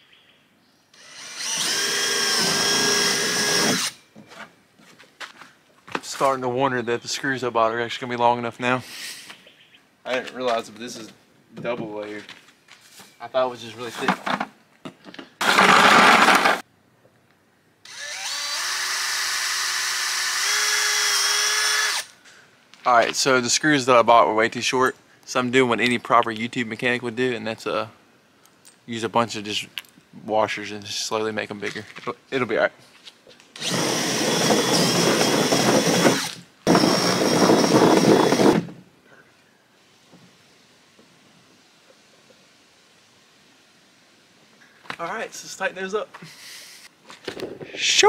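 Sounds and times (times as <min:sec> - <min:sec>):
cordless drill whining: 0:01.0 - 0:04.0, 0:15.4 - 0:16.6, 0:17.8 - 0:22.2, 0:33.6 - 0:38.7.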